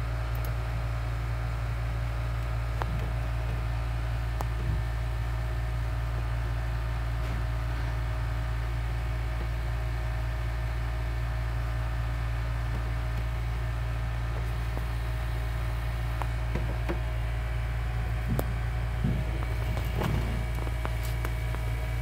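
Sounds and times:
low machine hum: 0.0s - 22.0s
soft rustles: 18.4s - 22.0s.

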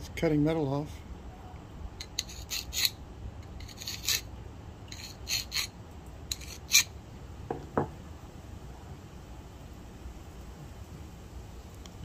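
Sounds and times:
file rasping on metal: 2.0s - 4.3s, 4.9s - 5.7s, 6.3s - 6.9s.

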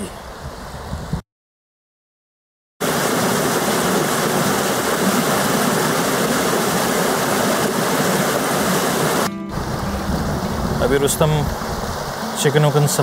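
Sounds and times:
river rushing over boulders: 2.8s - 13.0s.

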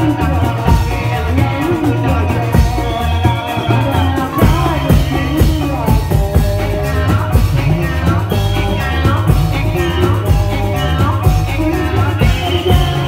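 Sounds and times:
melodic instruments: 0.0s - 13.0s
person singing: 0.0s - 13.0s
steady drum beat: 0.0s - 13.0s.

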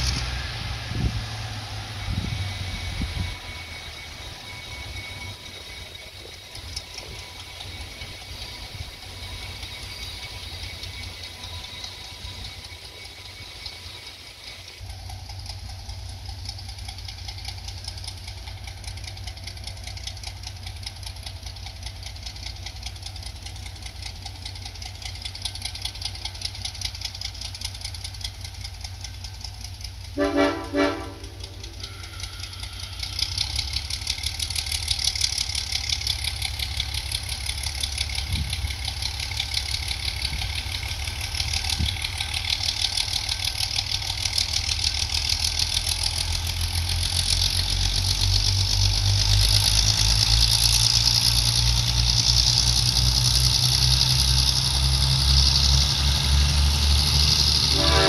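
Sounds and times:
diesel locomotive idling: 0.0s - 58.0s
locomotive horn blasts: 30.1s - 33.3s, 57.5s - 58.0s.

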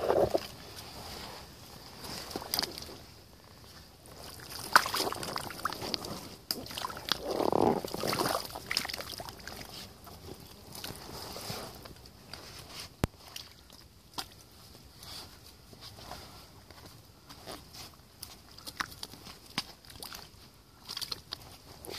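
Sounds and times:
boots squelching in mud: 4.2s - 9.7s.

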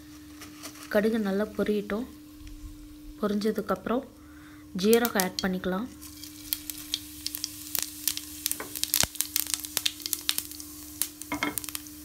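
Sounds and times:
light sizzle: 0.0s - 12.0s
seeds popping in hot oil: 4.8s - 12.0s.

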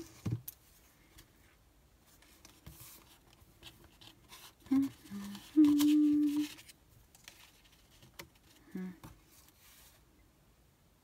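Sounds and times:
woman humming: 4.6s - 6.6s, 8.7s - 9.1s.

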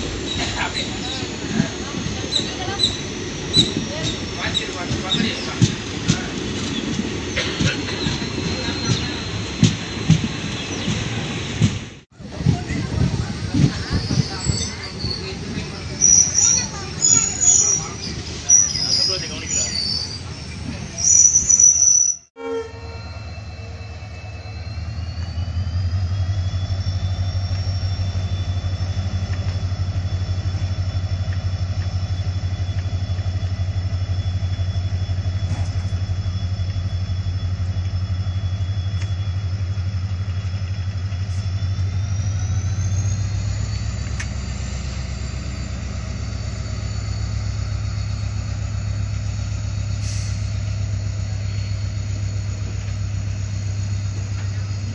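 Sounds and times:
locomotive engine drone: 0.0s - 54.9s
high rising whine: 22.2s - 54.9s
short loud horn blast: 22.4s - 23.3s.

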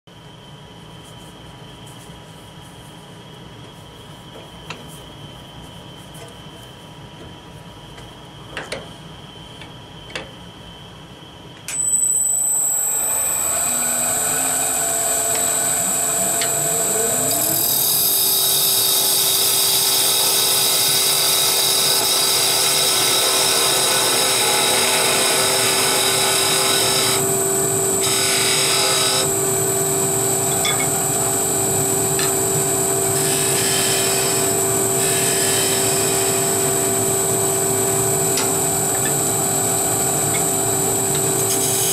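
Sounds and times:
wood lathe whining: 11.8s - 41.9s
chisel cutting wood: 17.3s - 27.2s, 28.0s - 29.3s.

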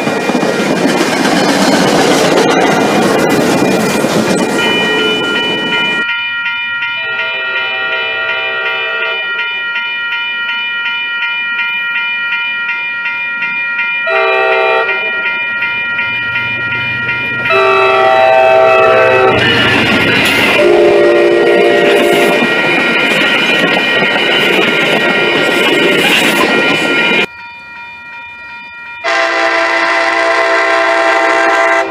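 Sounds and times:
train rumble: 0.0s - 6.1s, 13.8s - 27.3s
crossing bell ringing: 0.0s - 31.9s
passing train: 0.0s - 31.9s
train horn blasts: 7.0s - 9.5s, 14.1s - 15.3s, 17.5s - 19.5s, 20.5s - 22.4s, 29.0s - 31.9s.

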